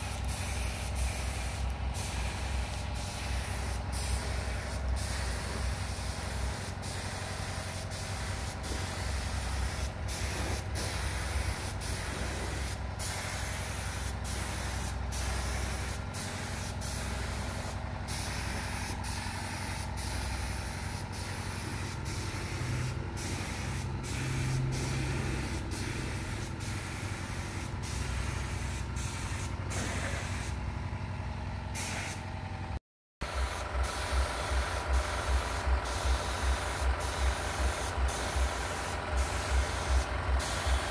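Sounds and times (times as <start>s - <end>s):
steady low hum: 0.0s - 30.5s
spray gun hissing: 0.0s - 30.6s, 31.8s - 32.2s, 33.3s - 40.9s.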